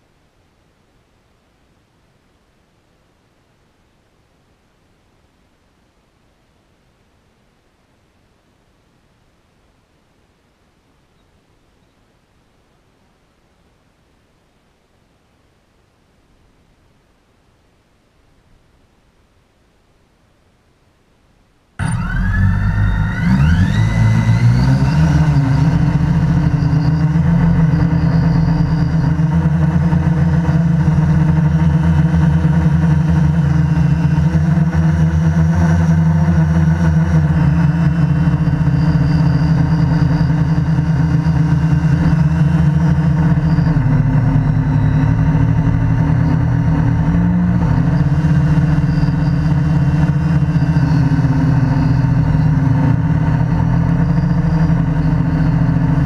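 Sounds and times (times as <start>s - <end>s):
quadcopter motors humming: 21.8s - 56.0s.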